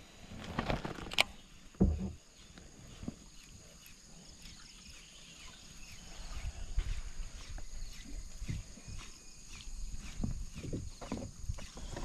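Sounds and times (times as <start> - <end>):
wind rumble on microphone: 6.1 - 12.0.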